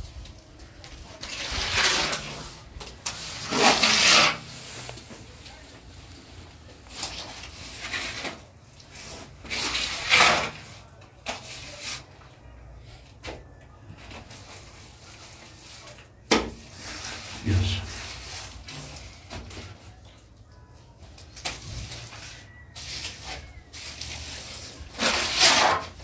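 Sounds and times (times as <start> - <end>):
wet plaster scraping and swishing: 1.0 - 5.1, 6.8 - 12.4, 14.2 - 20.0, 21.4 - 26.0.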